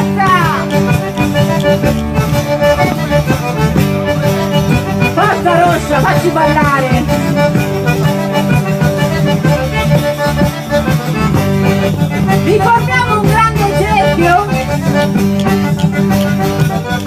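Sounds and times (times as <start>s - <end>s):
accordion music: 0.0s - 17.0s.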